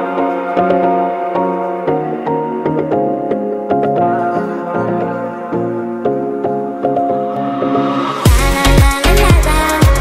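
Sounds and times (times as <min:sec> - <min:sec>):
keyboard chords: 0:00.0 - 0:10.0
dance beat with bass kicks: 0:07.8 - 0:10.0.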